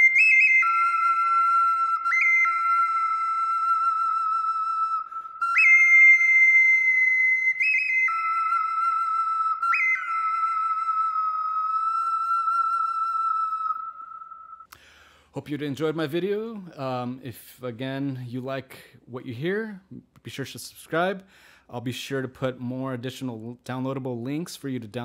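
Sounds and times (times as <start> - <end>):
bird whistle blown in long notes: 0.0 - 14.7.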